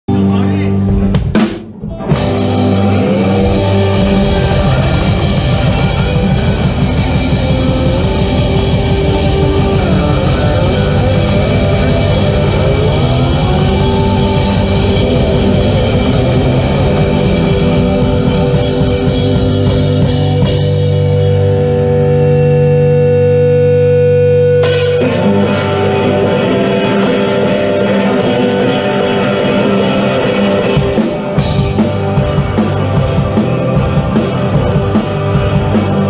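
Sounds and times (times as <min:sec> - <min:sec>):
keyboard: 0:00.0 - 0:36.0
drum kit: 0:00.1 - 0:22.0, 0:24.6 - 0:36.0
electric guitars: 0:00.1 - 0:36.0.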